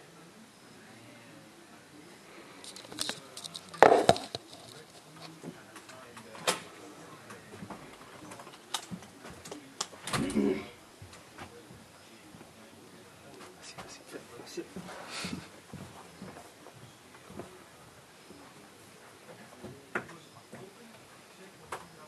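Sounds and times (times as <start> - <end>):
handling clicks and knocks: 2.6 - 5.1.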